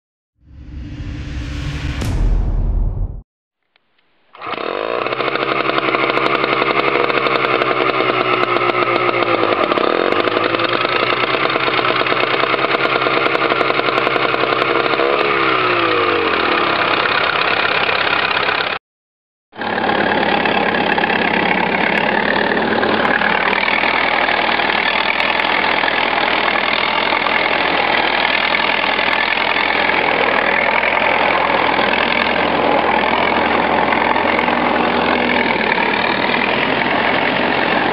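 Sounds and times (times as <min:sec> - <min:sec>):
combine harvester engine running: 0:19.6 - 0:37.9.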